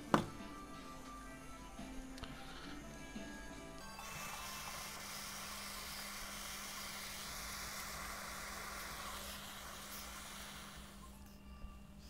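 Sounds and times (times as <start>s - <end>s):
gas flame hissing: 2.1s - 11.3s.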